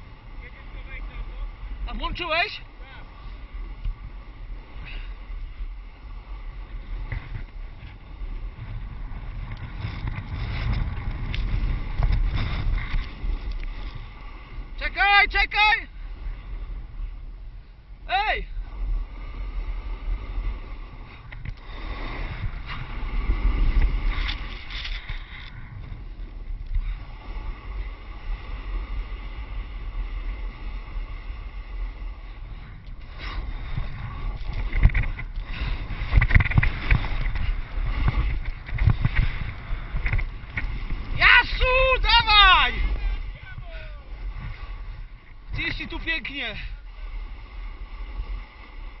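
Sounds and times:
wind buffeting a microphone: 0:00.0 - 0:49.0
snowboard scraping over snow: 0:06.6 - 0:13.3.

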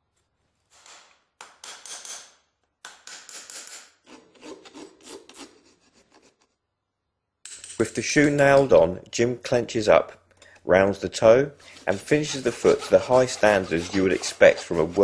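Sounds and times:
rasp filing a hoof: 0:03.3 - 0:06.4, 0:11.5 - 0:15.0.

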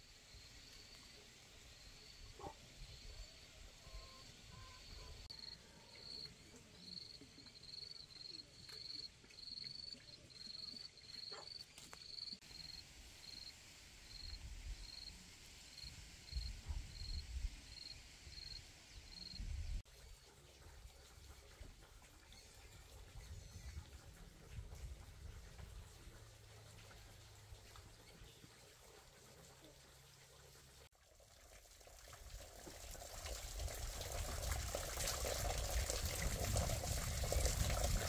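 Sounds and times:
insect chirping: 0:00.0 - 0:19.5.

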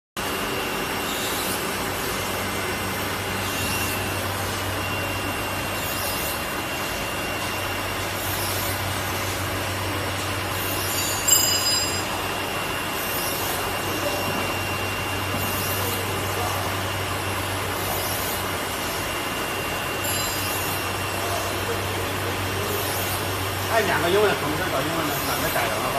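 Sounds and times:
high whine: 0:00.2 - 0:25.9
sharp squeak: 0:01.0 - 0:01.7, 0:03.3 - 0:09.4, 0:10.5 - 0:12.2, 0:13.0 - 0:16.9, 0:19.9 - 0:21.7.

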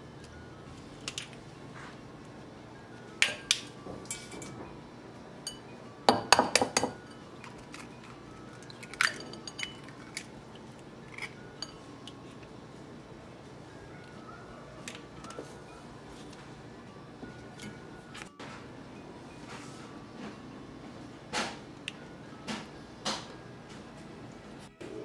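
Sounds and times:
eggshell clinking against bowls: 0:05.4 - 0:12.2.

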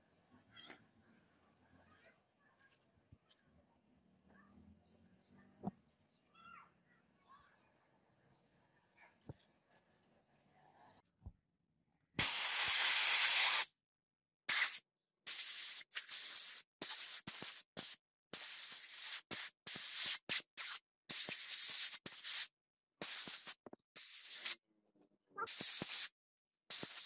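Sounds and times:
soda blasting gun hissing: 0:12.2 - 0:13.7, 0:14.5 - 0:24.6, 0:25.5 - 0:26.1, 0:26.7 - 0:27.0.

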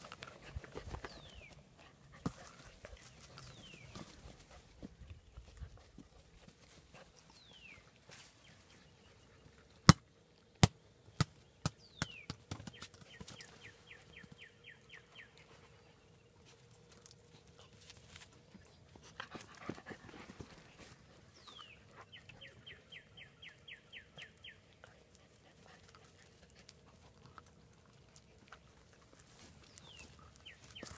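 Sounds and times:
songbird singing: 0:00.3 - 0:06.2, 0:06.9 - 0:09.8, 0:11.1 - 0:16.6, 0:17.4 - 0:27.4, 0:28.2 - 0:30.9.

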